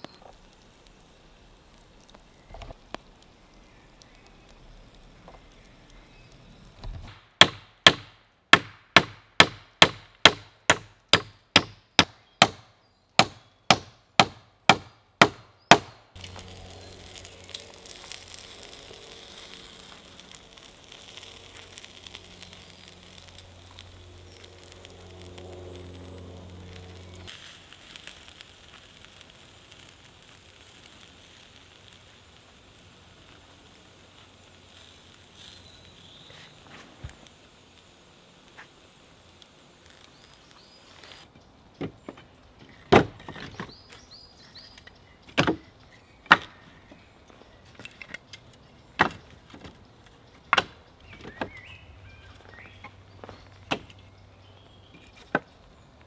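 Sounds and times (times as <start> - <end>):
meat grilling hiss: 0.0 - 8.0, 15.6 - 41.8, 43.7 - 56.0
chopping blows on wood: 7.0 - 16.0, 42.9 - 43.7
low hum: 16.1 - 27.3.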